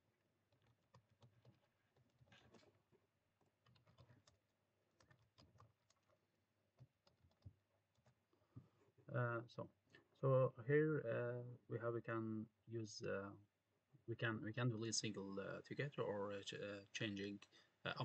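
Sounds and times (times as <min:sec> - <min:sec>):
faint keyboard typing: 0:00.0 - 0:09.0.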